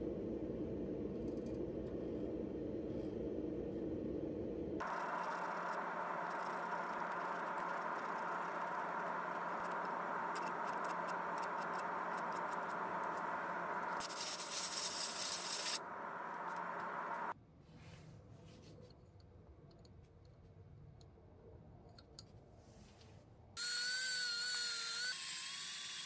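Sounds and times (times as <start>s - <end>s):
sandpaper hissing on spinning wood: 4.8s - 15.8s
lathe motor hum: 4.8s - 17.3s.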